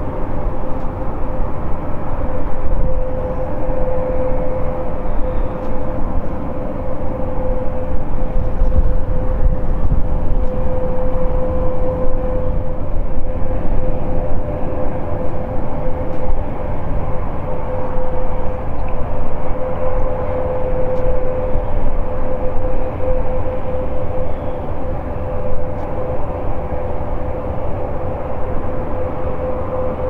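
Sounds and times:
turboprop engines droning: 0.0 - 30.0.

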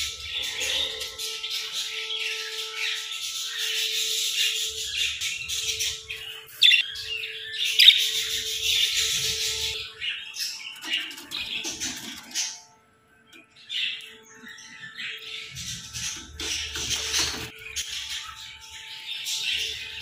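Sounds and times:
budgerigars chattering: 0.0 - 12.7, 13.5 - 20.0
sharp bird chirps: 0.0 - 12.8.

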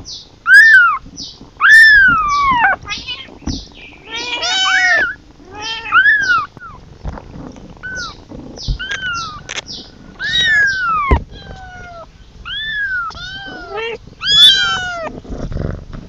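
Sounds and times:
kitten meowing: 0.5 - 1.0, 1.6 - 6.8, 7.8 - 9.6, 10.2 - 15.1.

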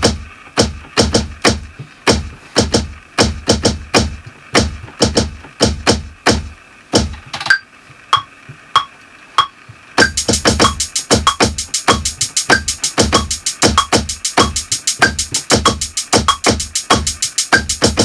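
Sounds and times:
kick and snare hits: 0.0 - 7.3
fast hi-hat: 0.0 - 18.0.

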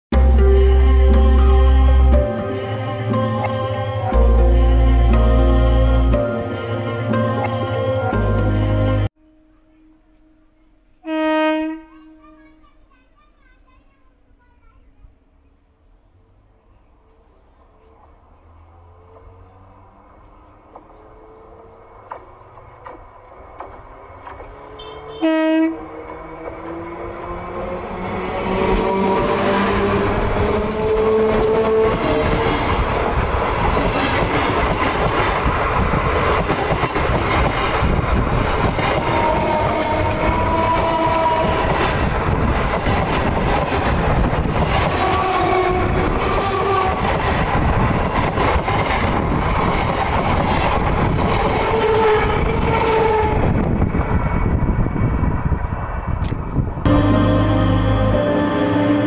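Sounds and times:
train wheels rumbling over track: 16.6 - 59.0.

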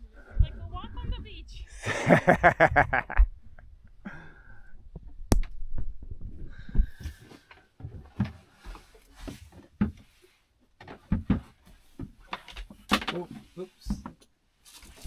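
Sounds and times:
soft knocks and clunks: 4.8 - 14.3.

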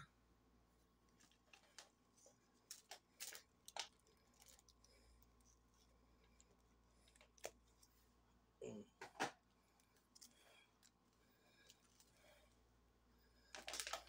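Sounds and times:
plastic packaging crinkling: 1.2 - 5.6, 13.5 - 14.0.

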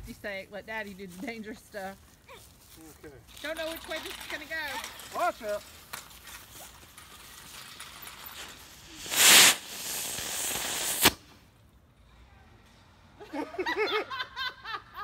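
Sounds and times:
firework hissing: 6.4 - 11.4
firework bang: 9.0 - 11.4.

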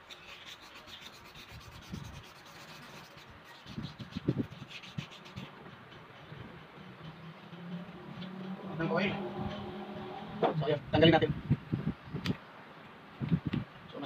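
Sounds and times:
sandpaper rubbing on metal shaft: 0.0 - 9.2.

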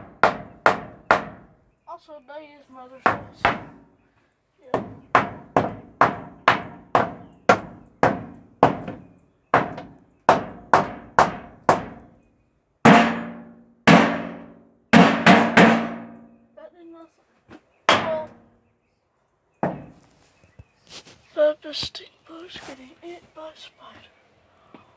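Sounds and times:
hammer driving nails into wood: 0.0 - 1.4, 4.8 - 12.0.

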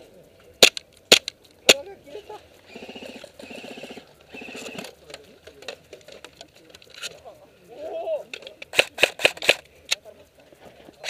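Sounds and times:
airsoft rifle full-auto bursts: 2.7 - 4.9, 8.7 - 9.6.

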